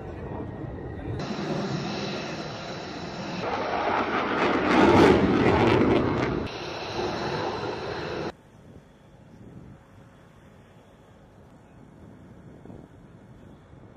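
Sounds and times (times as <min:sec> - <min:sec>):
jet flying over: 0:00.0 - 0:08.4.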